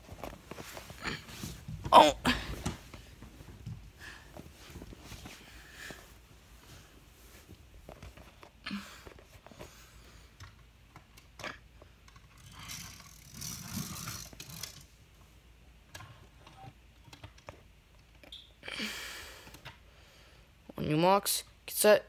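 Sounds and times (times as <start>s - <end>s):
toy cars clicking and knocking on wood: 10.4s - 14.9s
toy car rough scraping: 12.4s - 14.8s.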